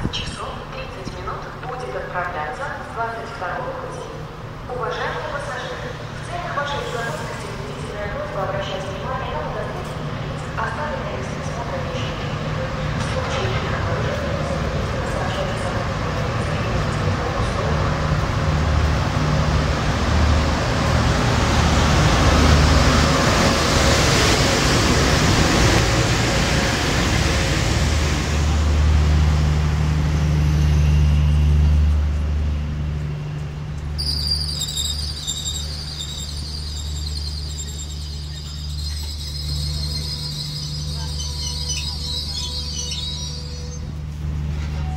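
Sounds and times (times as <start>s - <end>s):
electric locomotive humming: 0.0s - 44.9s
wheels on rails: 33.0s - 44.9s
high-pitched squeal: 34.0s - 44.0s.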